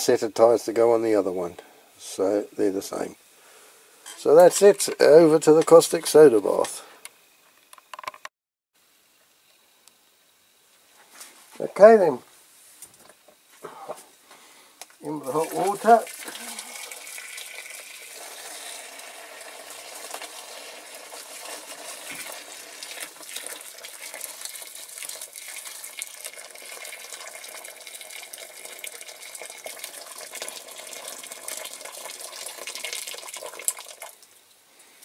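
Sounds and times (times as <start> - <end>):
hot water pouring into a tub: 15.0 - 34.4.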